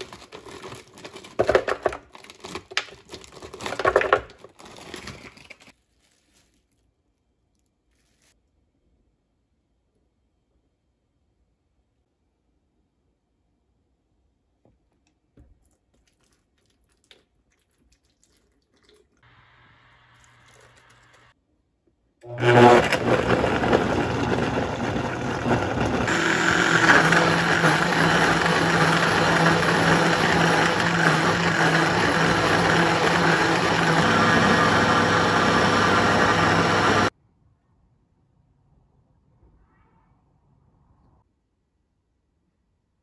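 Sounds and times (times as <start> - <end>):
blender running: 22.2 - 37.1.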